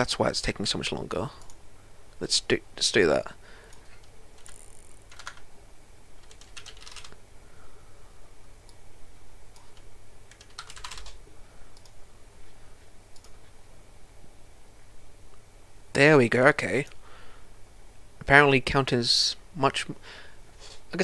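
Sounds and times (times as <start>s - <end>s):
typing on computer keyboard: 4.4s - 5.4s, 6.2s - 7.2s, 9.6s - 11.2s.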